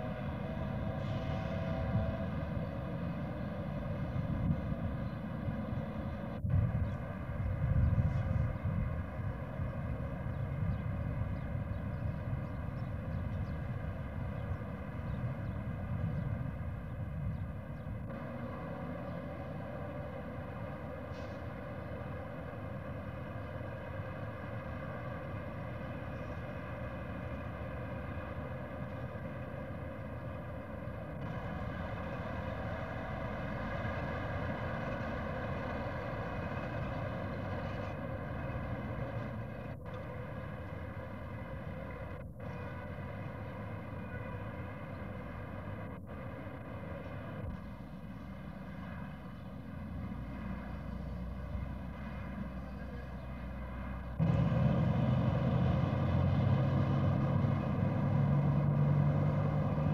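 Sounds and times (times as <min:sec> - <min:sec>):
constant hum: 0:00.0 - 0:59.9.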